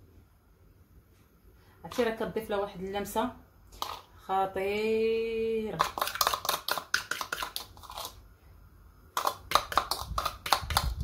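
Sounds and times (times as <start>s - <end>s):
spoon scraping plastic bowl: 3.7s - 4.1s, 5.8s - 8.2s, 9.2s - 11.0s.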